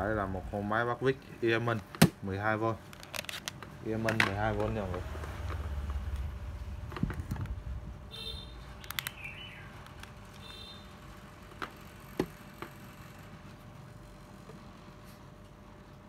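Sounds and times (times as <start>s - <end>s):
handling clicks and knocks: 2.9s - 6.2s
small bird chirping: 8.5s - 10.8s.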